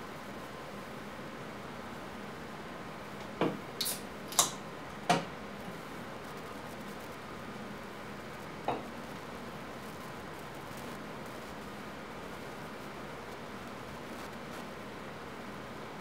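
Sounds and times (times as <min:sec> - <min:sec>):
steady hiss: 0:00.0 - 0:16.0.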